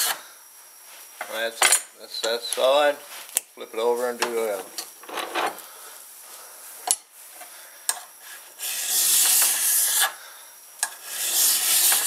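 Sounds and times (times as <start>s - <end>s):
file rasping on metal: 8.6s - 10.1s, 11.0s - 12.0s.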